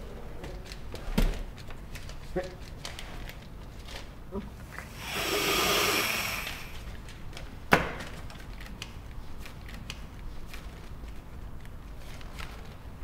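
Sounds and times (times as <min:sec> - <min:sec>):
rushing hiss: 0:04.9 - 0:06.8.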